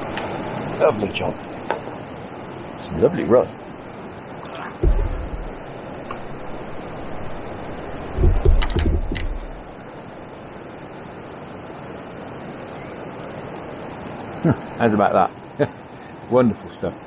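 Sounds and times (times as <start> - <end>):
wind: 0.0 - 17.0
water rushing over weir: 4.3 - 10.5
handling knocks and clicks: 8.2 - 9.6.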